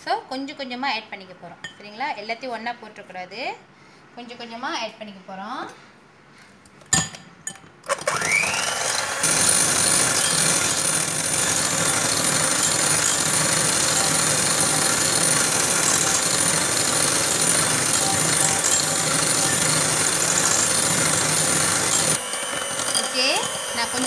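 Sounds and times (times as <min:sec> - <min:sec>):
electric hand mixer whining: 0:07.9 - 0:24.0.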